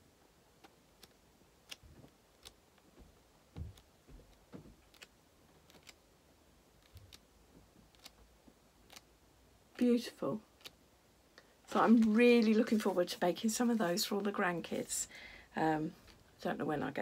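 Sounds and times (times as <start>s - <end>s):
book pages turning: 3.6s - 6.0s
small clicks: 7.9s - 8.2s.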